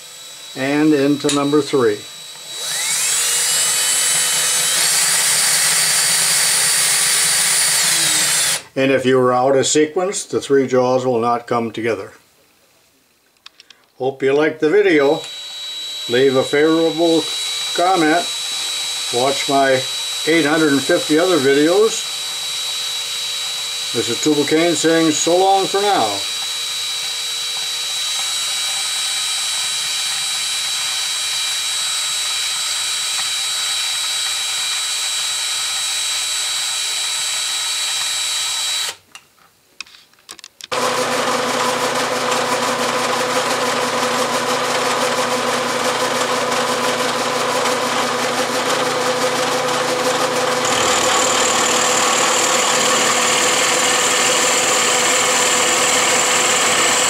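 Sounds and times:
motor whine: 0.0 - 8.6, 15.2 - 33.4, 47.2 - 57.0
milling machine cutting metal: 0.0 - 8.7, 15.0 - 39.0, 40.7 - 57.0.

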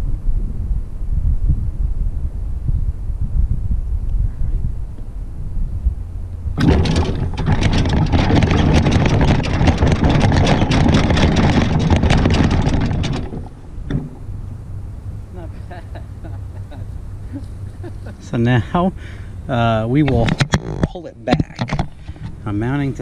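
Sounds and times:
tyres rumbling on grass: 6.5 - 23.0
clattering rattle of tractor body: 6.6 - 14.5, 20.0 - 22.5.

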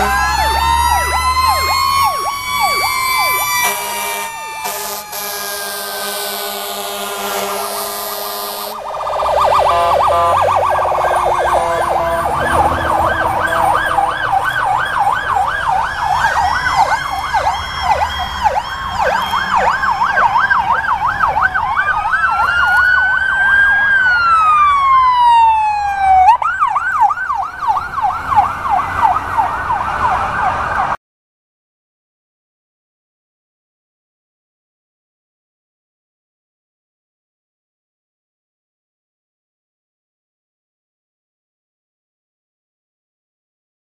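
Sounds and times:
siren wailing: 0.0 - 31.0
siren yelping: 0.0 - 31.0
low engine rumble: 8.6 - 29.9.

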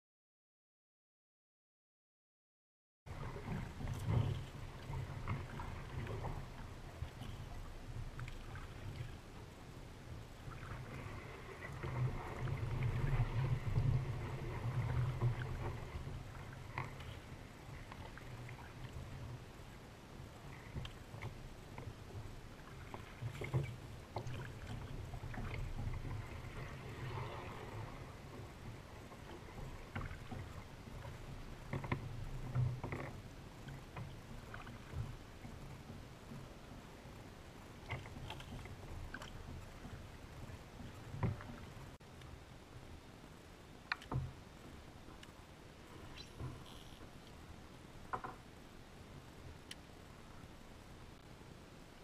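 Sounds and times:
water lapping against kayak hull: 3.1 - 52.0
light ticks and clicks: 43.8 - 44.3, 45.1 - 45.4.

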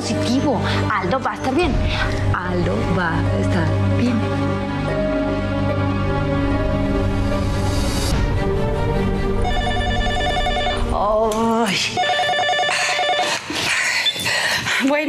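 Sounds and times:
soft sad background music: 0.0 - 13.4
telephone ringing: 9.4 - 11.0, 11.9 - 13.6.

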